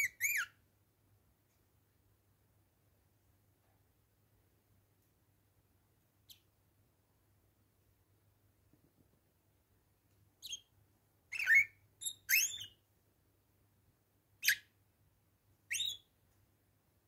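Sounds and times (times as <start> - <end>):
parakeets chirping: 0.0 - 0.5, 11.3 - 12.8, 15.7 - 16.0.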